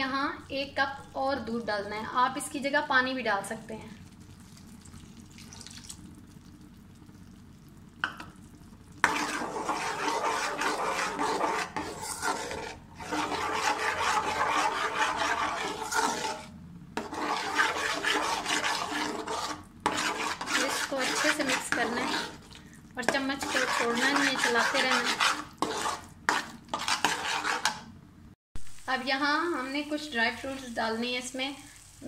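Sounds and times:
spoon scraping a metal pan: 9.0 - 27.9.

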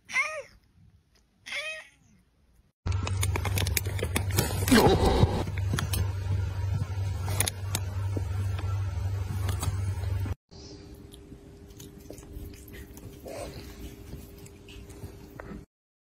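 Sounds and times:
low rumble with clicks: 2.9 - 10.4
cat chewing on fingers: 11.1 - 15.4.

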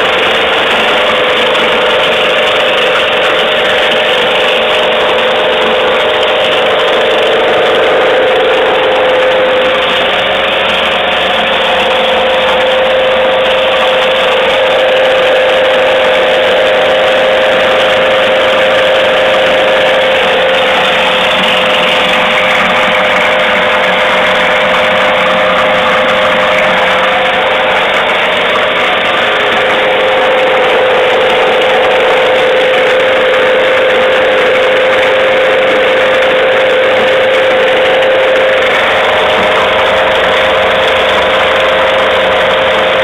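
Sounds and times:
grain grinder motor whine: 0.0 - 43.0
grinding rattle: 0.0 - 43.0.

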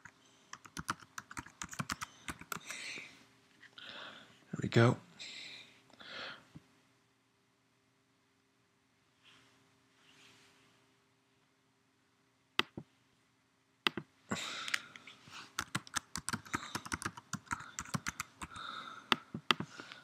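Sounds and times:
rapid typing on computer keyboard: 0.0 - 2.8, 15.6 - 19.7.

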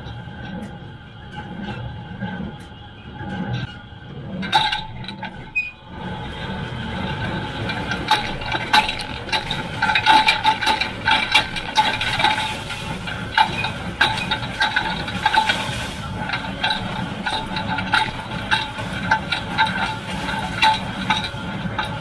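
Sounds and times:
baler metallic clatter: 0.0 - 22.0.

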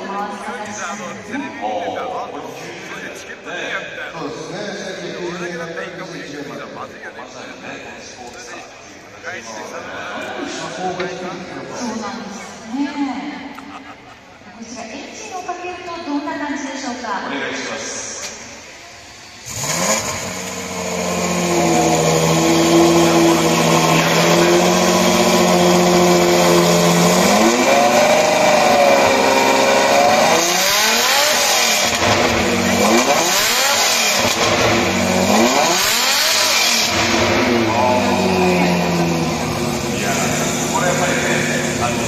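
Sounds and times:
car engine starting and idling: 18.0 - 42.0
engine revving in throttle blips: 19.4 - 42.0.

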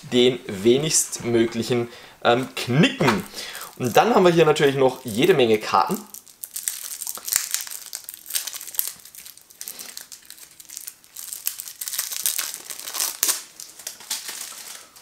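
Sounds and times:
plastic shrink wrap tearing: 3.2 - 15.0.

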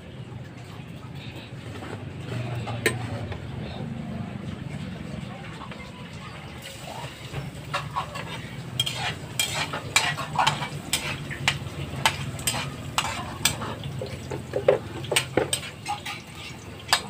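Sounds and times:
onion sizzling in hot oil: 6.6 - 17.0
metal spatula scraping a pan: 6.9 - 17.0.

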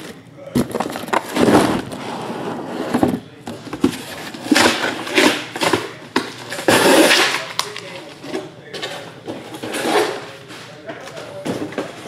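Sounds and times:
cardboard boxes scraping and rustling: 0.6 - 5.8.

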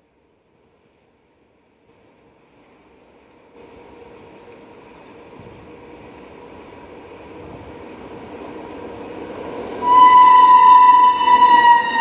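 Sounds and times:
electric locomotive running: 3.4 - 12.0
locomotive horn: 9.8 - 12.0.

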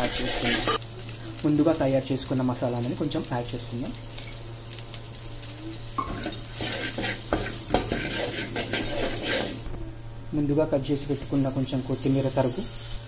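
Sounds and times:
spoon scraping metal pot: 0.0 - 0.8, 6.0 - 9.7
spices sizzling in oil: 0.0 - 10.1, 10.8 - 13.0
steady low hum: 0.0 - 13.0.

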